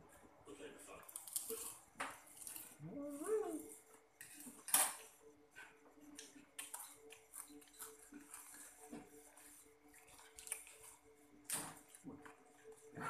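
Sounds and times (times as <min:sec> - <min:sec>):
faint chewing: 0:05.5 - 0:11.1.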